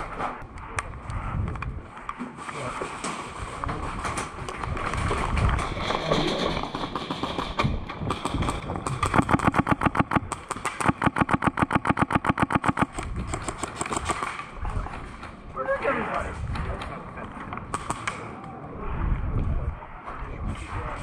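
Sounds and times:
airsoft gun firing bursts: 6.7 - 14.5.

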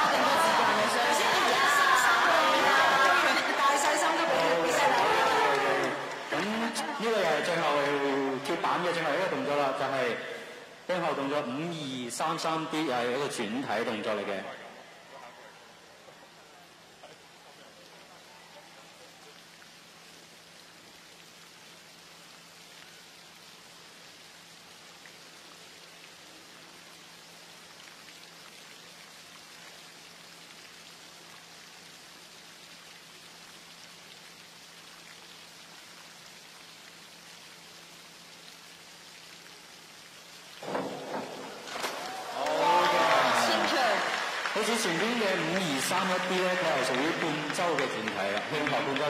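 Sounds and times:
crowd noise with voices: 0.0 - 10.9, 41.6 - 49.0
low hiss of poolside ambience: 0.0 - 49.0.

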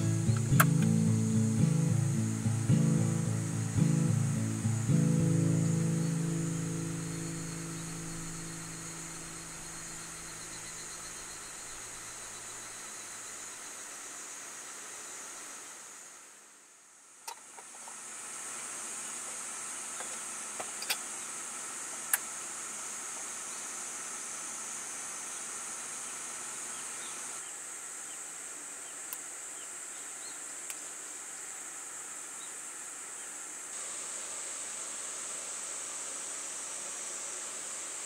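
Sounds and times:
insects chirring: 0.0 - 15.8
sharp clicks: 0.3 - 1.0.

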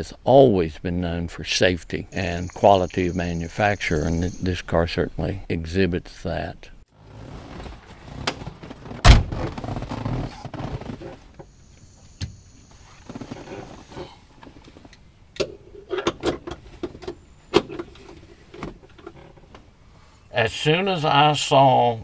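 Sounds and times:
heavy thump: 8.2 - 10.0.

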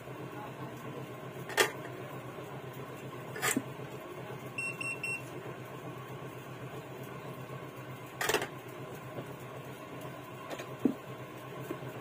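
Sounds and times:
equipment humming: 0.0 - 12.0
short electronic beeps: 4.6 - 5.3.

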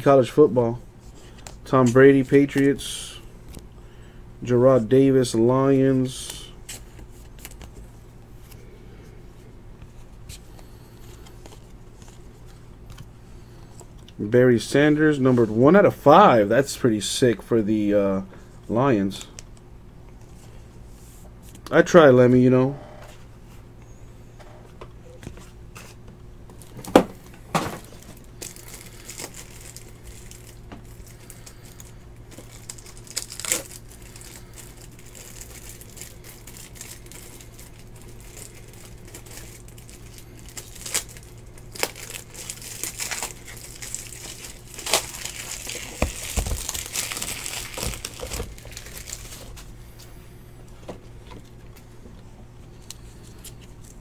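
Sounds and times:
plastic packaging crinkling: 27.5 - 49.7.

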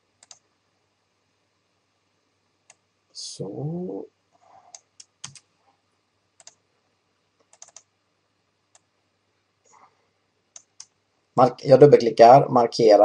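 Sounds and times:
mouse and keyboard clicks: 0.2 - 0.4, 4.7 - 5.4, 7.4 - 7.9, 10.6 - 11.0.

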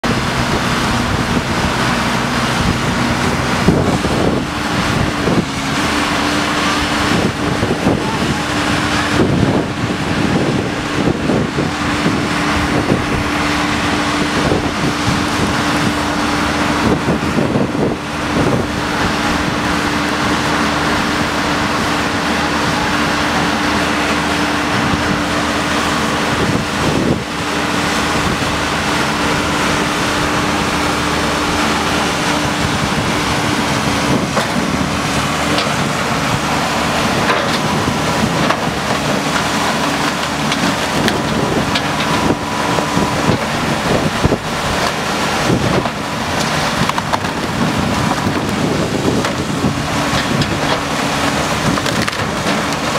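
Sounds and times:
backhoe diesel engine running: 0.0 - 52.9
wind buffeting microphone: 0.0 - 52.9.

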